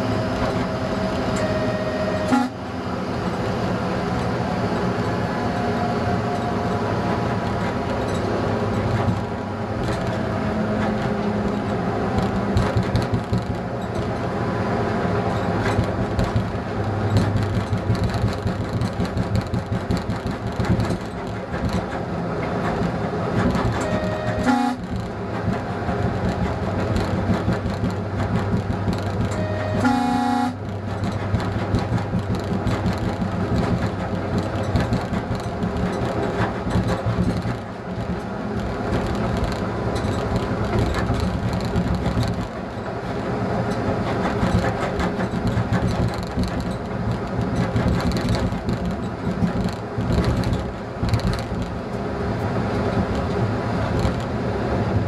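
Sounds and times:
diesel engine drone: 0:00.0 - 0:55.0
wheel and rail noise: 0:00.0 - 0:55.0
train horn: 0:00.8 - 0:02.8, 0:23.8 - 0:24.9, 0:29.3 - 0:30.7.

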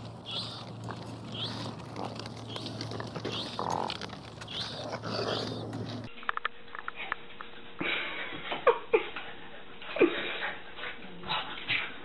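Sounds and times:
raccoons feeding: 0:00.0 - 0:06.1
puppy whimpering: 0:00.2 - 0:06.1.

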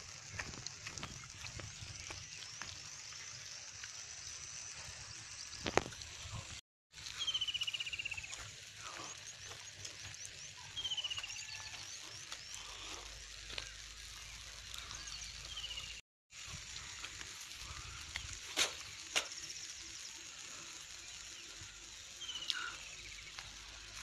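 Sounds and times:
high bird chirps: 0:07.1 - 0:09.1, 0:10.2 - 0:13.0.

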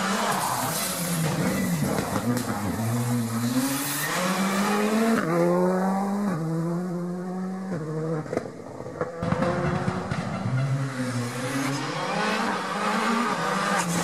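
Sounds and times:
approaching rally car engine: 0:00.0 - 0:14.0
rally car accelerating: 0:00.0 - 0:14.0.

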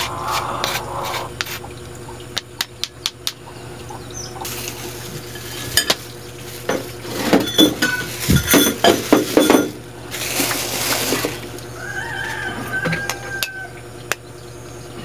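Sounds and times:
plastic bag rustling: 0:04.4 - 0:11.6
bowl and fork clinking: 0:05.2 - 0:06.0, 0:06.7 - 0:09.8.

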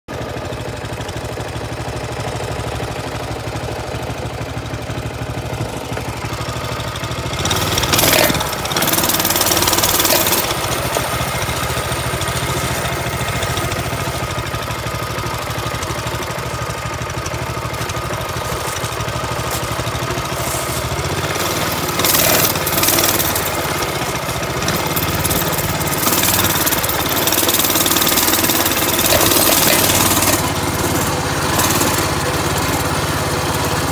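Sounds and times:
small engine running: 0:00.1 - 0:33.9.

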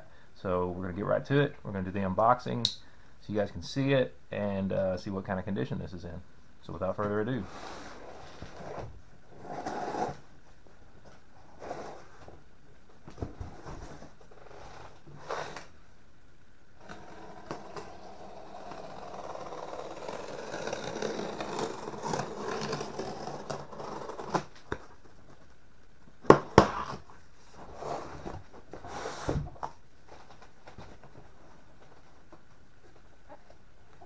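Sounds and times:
cardboard box scraping and rustling: 0:16.8 - 0:24.5.

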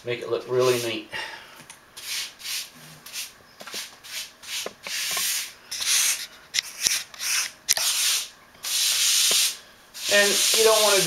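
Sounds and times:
grout float scraping tiles: 0:02.0 - 0:06.3, 0:07.0 - 0:11.0.

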